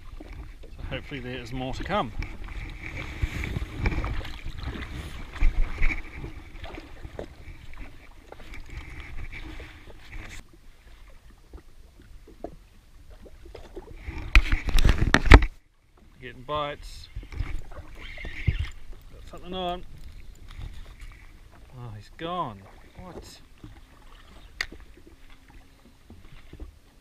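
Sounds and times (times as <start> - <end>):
wind rumbling on microphone: 0.0 - 15.6, 16.8 - 21.7
water slapping against hull: 0.0 - 27.0.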